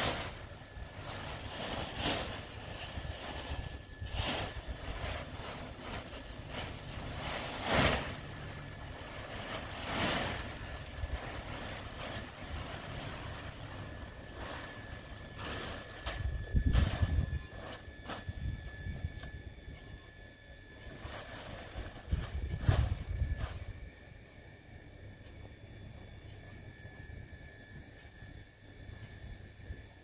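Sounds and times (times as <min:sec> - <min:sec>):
wind buffeting microphone: 0:16.2 - 0:19.2, 0:22.0 - 0:23.9.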